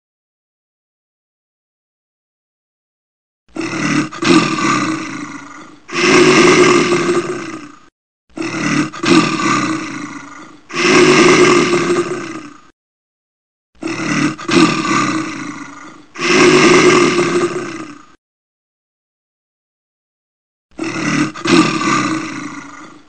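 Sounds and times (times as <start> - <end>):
bear roaring: 3.5 - 12.8, 13.8 - 18.2, 20.7 - 23.0.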